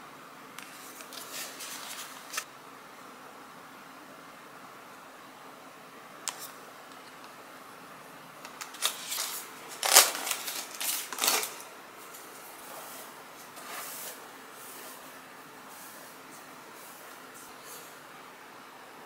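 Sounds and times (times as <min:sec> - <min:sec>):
cardboard packaging crackling: 0:08.5 - 0:12.8
hairbrush strokes through hair: 0:12.6 - 0:18.0.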